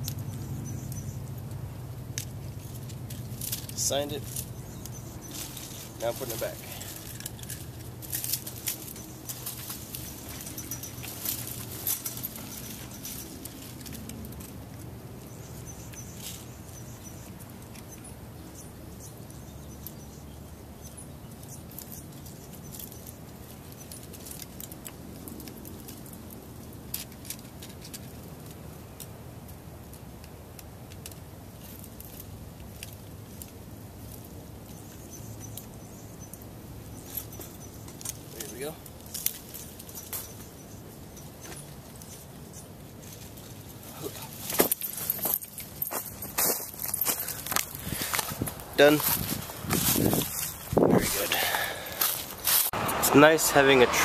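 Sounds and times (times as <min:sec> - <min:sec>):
dry leaves and twigs rustling: 0:00.0 - 0:54.0
chain-link fence rattling: 0:02.2 - 0:17.2, 0:36.9 - 0:53.9.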